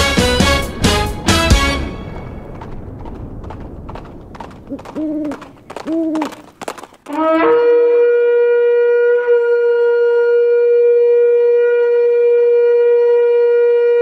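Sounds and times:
shofar blast: 7.1 - 14.0.

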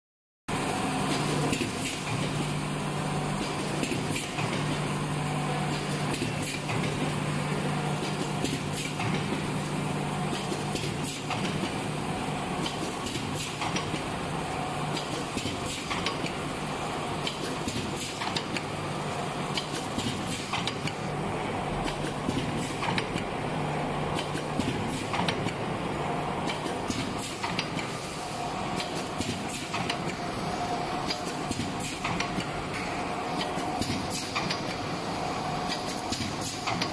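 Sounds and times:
machine clattering clicks: 12.6 - 14.1, 14.9 - 16.4, 19.5 - 21.0, 21.8 - 23.3, 24.2 - 25.6, 26.4 - 27.9, 28.8 - 30.2, 31.0 - 32.8, 33.4 - 34.8, 35.6 - 36.9.

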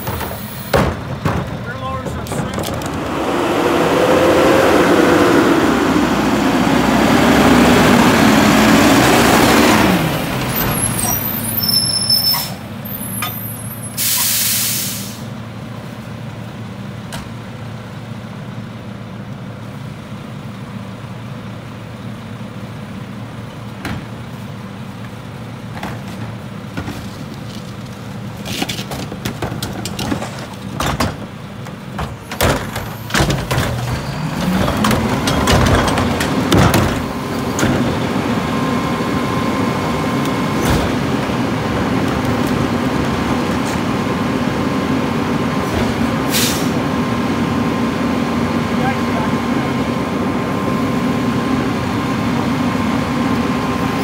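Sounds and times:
cart knocking and clattering: 0.0 - 3.0, 28.4 - 38.0
garbage truck diesel engine: 0.0 - 54.0
air brakes hissing: 10.9 - 15.3, 45.7 - 46.8.

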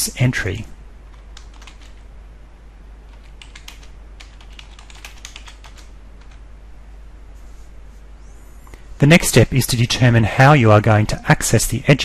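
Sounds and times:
typing on computer keyboard: 1.1 - 2.0, 3.1 - 6.4.

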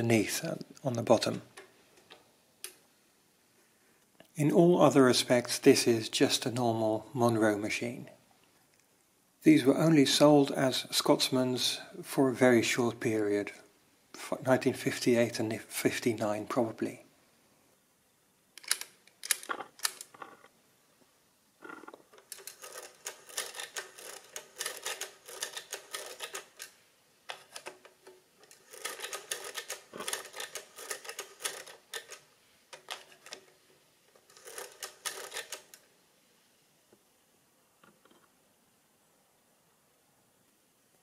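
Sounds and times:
mechanical calculator clattering clicks: 22.2 - 26.7, 27.3 - 32.2, 34.2 - 35.8.

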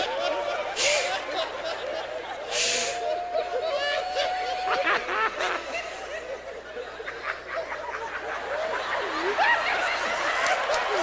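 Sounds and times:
audience laughing: 0.0 - 11.0
high whoops: 2.8 - 5.1.

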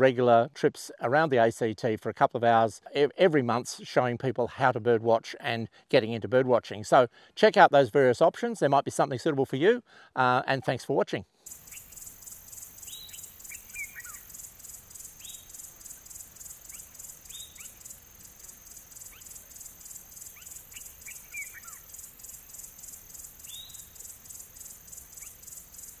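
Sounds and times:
bird high downward calls: 11.5 - 26.0
insects chirring: 11.5 - 26.0.

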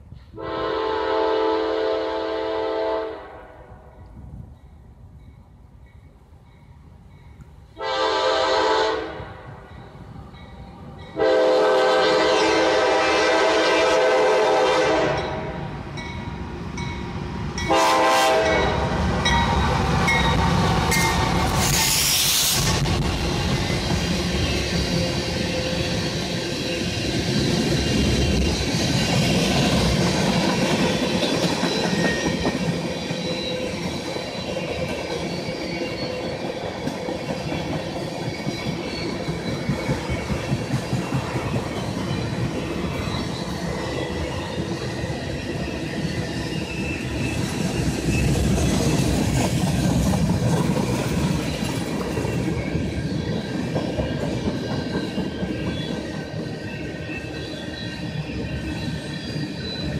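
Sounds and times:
steel wheels rumbling on rails: 4.2 - 59.9
high wheel squeal: 31.6 - 36.5, 37.5 - 40.3, 42.1 - 49.2, 51.3 - 59.9.

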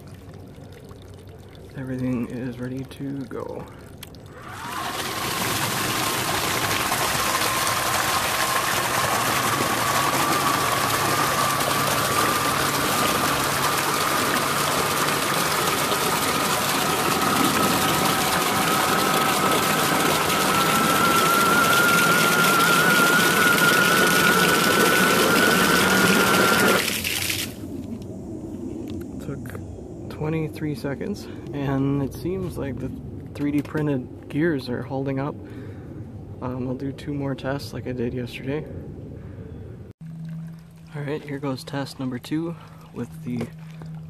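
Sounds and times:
electric motor whining: 4.4 - 26.9
water jet splashing hiss: 4.5 - 27.8.

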